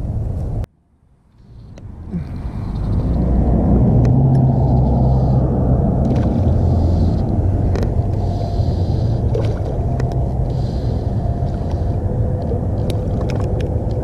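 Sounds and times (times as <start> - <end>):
steady low rumble: 0.0 - 14.0
fly line clicks: 4.0 - 4.9, 6.0 - 8.3, 11.5 - 14.0.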